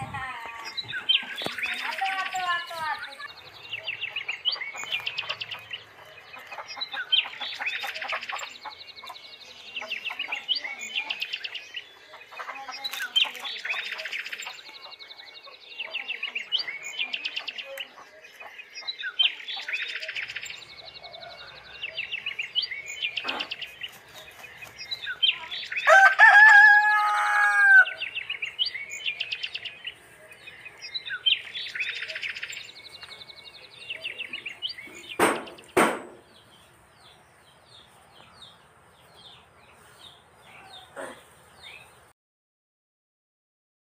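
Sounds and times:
rooster crowing: 25.8 - 28.0.

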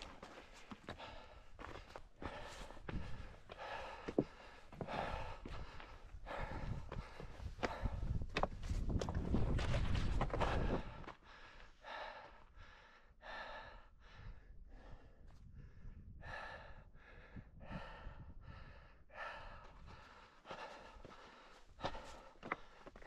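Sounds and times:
person breathing hard: 0.0 - 8.4, 10.4 - 23.0
wind rumble on microphone: 2.7 - 3.4, 4.8 - 11.1, 14.0 - 20.0.

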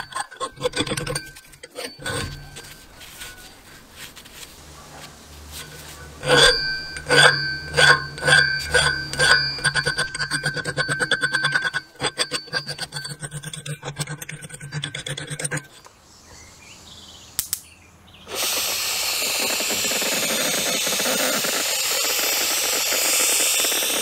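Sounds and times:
file stroking ringing metal blade: 0.0 - 15.7, 19.2 - 24.0
abrasive blasting hiss: 18.3 - 24.0.

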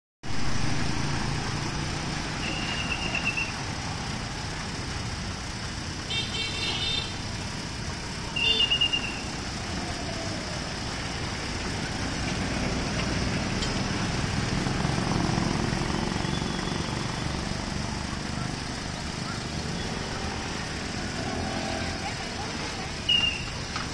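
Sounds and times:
motorbikes passing: 0.2 - 23.9
rain and tyres hissing: 0.2 - 23.9
high horn toots: 2.3 - 3.4
burst of beeps: 23.0 - 23.6.

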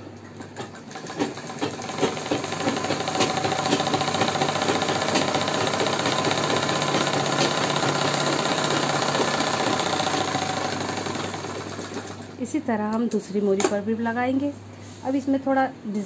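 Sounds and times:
sewing machine rattling: 0.4 - 12.3.

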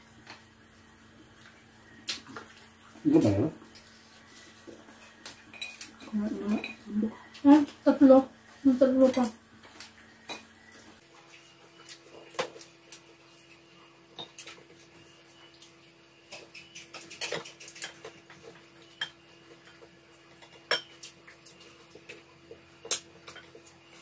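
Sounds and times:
cutlery clinking on plates: 16.3 - 18.2, 19.0 - 21.2.

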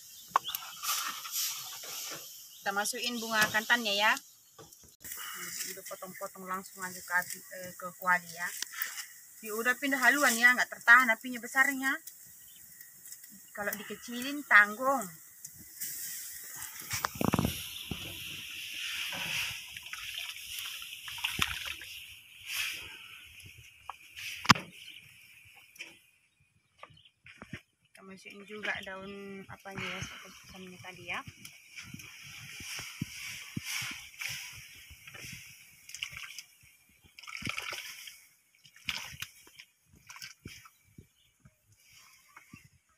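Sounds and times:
simmering pot hiss: 0.0 - 25.8, 28.2 - 37.2.

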